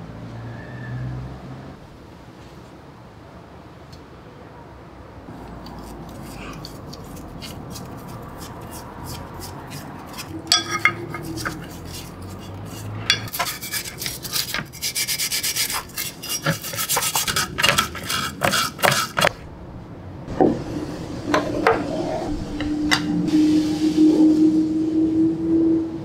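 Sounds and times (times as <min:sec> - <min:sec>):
stiff brush scrubbing metal: 0:05.3 - 0:19.4.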